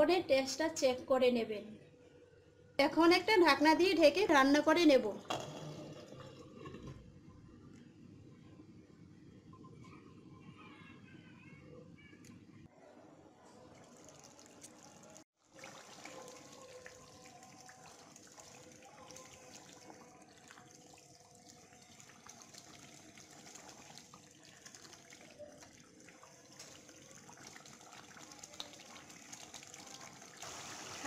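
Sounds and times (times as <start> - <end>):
curry bubbling in pan: 13.9 - 31.0.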